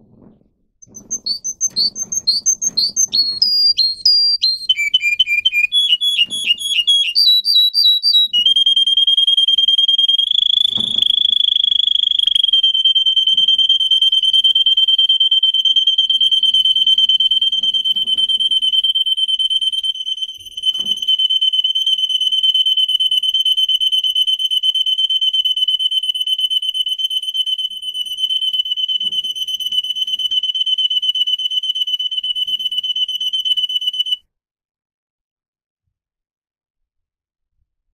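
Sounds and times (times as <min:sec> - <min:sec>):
canary singing trills: 0:00.8 - 0:13.5.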